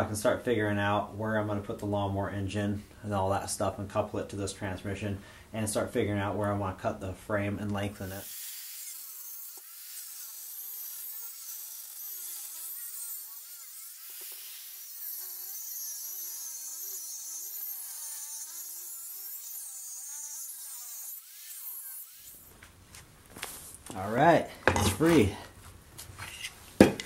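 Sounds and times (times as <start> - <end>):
angle grinder cutting metal: 8.0 - 22.5.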